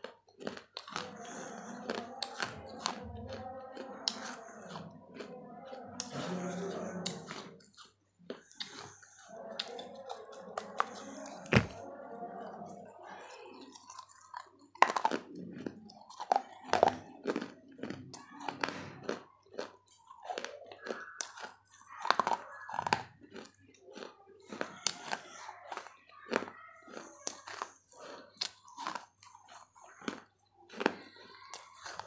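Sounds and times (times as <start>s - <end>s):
clay cracking between teeth: 13.6s - 32.0s.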